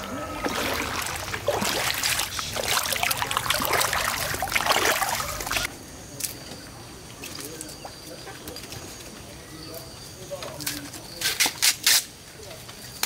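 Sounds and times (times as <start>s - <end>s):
feet splashing through water: 0.0s - 5.7s.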